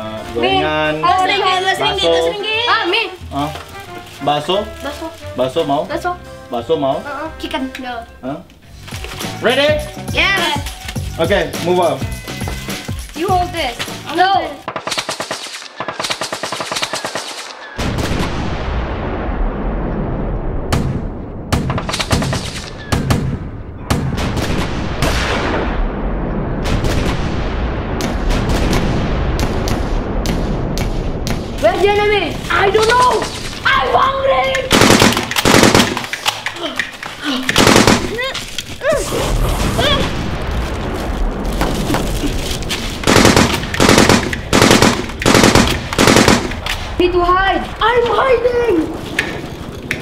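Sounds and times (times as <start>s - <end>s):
gunshots: 14.7s - 19.1s, 20.6s - 31.7s, 34.6s - 36.4s, 37.5s - 38.4s, 42.9s - 47.0s
heavy blast: 17.8s - 36.1s, 37.5s - 49.0s
machine-gun bursts: 34.7s - 36.1s, 37.6s - 38.3s, 43.0s - 46.6s.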